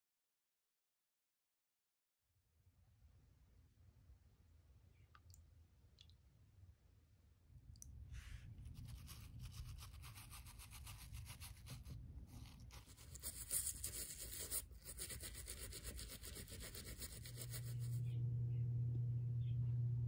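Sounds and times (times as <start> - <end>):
toothbrush scrubbing sandal: 8.7 - 18.0.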